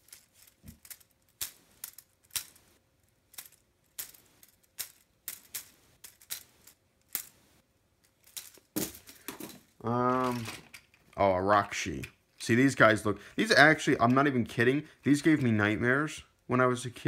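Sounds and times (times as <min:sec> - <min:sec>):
plastic pieces clicking and knocking: 0:00.0 - 0:07.4, 0:08.0 - 0:11.2.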